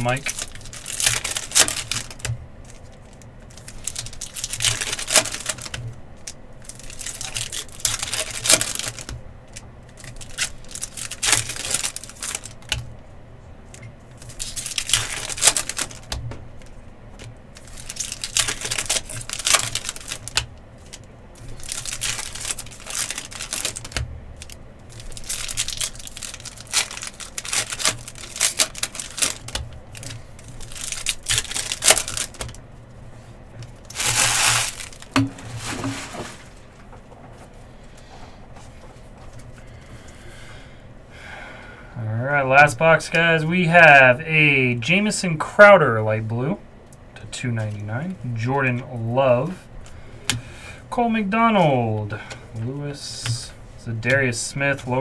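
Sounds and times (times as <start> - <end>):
card packs torn open: 0.0 - 5.8, 6.6 - 9.2, 10.0 - 12.8, 14.2 - 16.1, 17.5 - 32.6, 33.8 - 36.6
wrappers crinkling: 0.0 - 12.9, 13.7 - 37.6.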